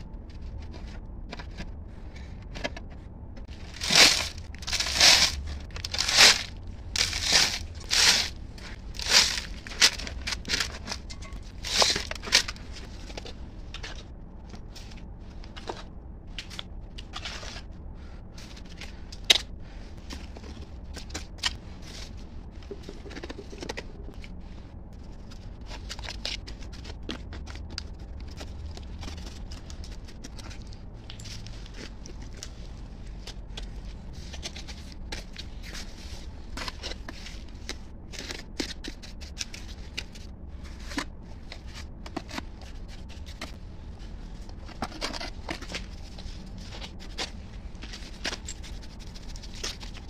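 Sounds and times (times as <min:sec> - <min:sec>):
low steady hum: 0:00.0 - 0:50.0
gravel crunching: 0:03.4 - 0:50.0
plastic bag crinkling: 0:03.5 - 0:12.6.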